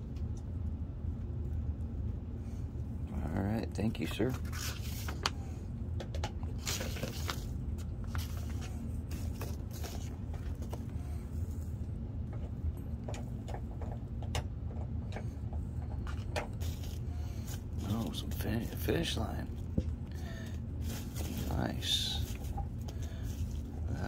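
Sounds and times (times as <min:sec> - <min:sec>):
steady low hum: 0:00.0 - 0:24.0
paper and packing peanuts rustling: 0:04.0 - 0:05.3, 0:06.5 - 0:10.9, 0:16.6 - 0:19.1, 0:20.2 - 0:24.0.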